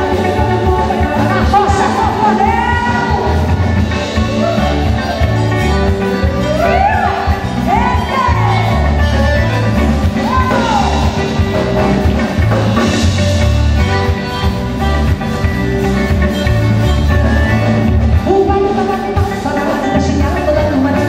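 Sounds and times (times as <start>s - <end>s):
woman singing: 0.0s - 5.3s, 6.0s - 9.0s, 18.2s - 21.0s
bass guitar: 0.0s - 21.0s.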